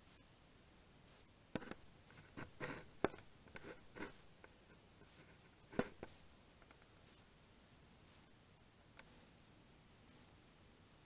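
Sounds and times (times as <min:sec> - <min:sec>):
camera handling knocks and scrapes: 0:05.7 - 0:06.2.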